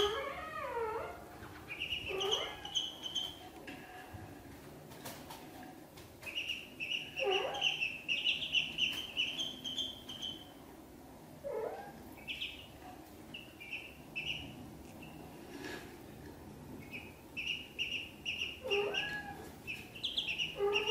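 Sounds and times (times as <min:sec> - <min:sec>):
ducklings peeping: 0:00.0 - 0:03.5, 0:06.2 - 0:10.6, 0:11.4 - 0:15.3, 0:16.8 - 0:20.9.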